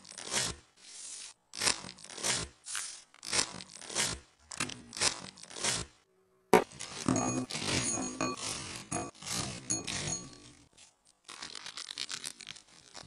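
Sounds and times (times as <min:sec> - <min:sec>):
scissors cutting plastic: 0:01.5 - 0:05.9, 0:06.6 - 0:13.0
plastic wrapper crinkling: 0:10.8 - 0:13.0.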